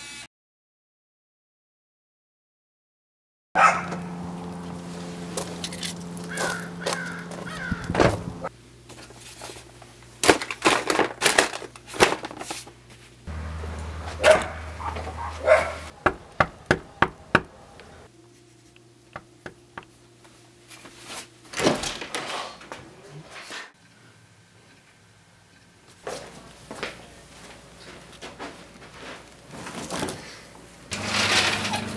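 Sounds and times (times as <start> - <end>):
footsteps on wooden deck: 6.2 - 8.5, 13.7 - 18.0, 26.0 - 29.4
house door opening: 7.0 - 8.5, 21.5 - 23.6, 30.9 - 31.9
car door shutting: 7.6 - 8.5.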